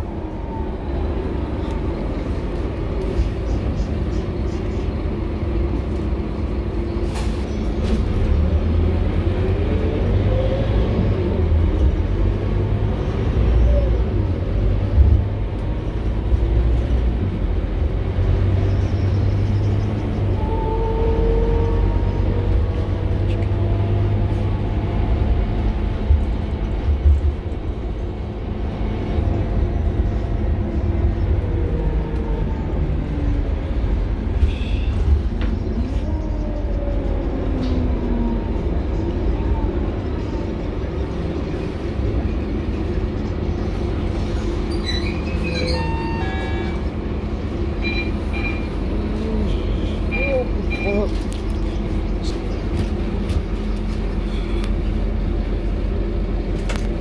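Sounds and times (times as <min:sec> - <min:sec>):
bus engine rumble: 0:00.0 - 0:57.0.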